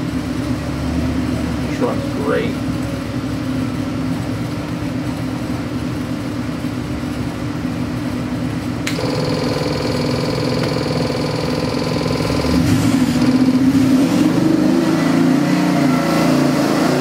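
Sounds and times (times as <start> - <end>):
engine running on dyno: 0.0 - 17.0
steady whine: 8.8 - 14.6.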